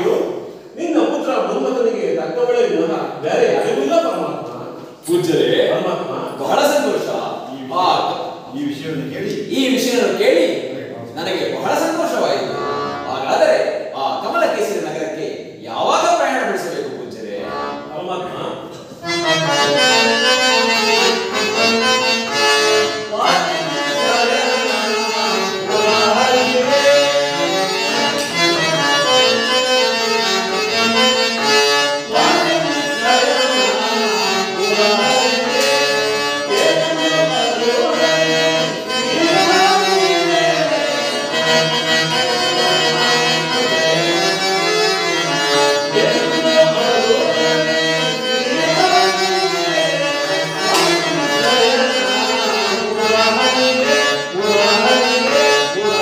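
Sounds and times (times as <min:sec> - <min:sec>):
harmonium chords: 0:00.0 - 0:56.0
man singing ornamented melody: 0:23.2 - 0:29.2, 0:32.1 - 0:41.6, 0:45.9 - 0:56.0.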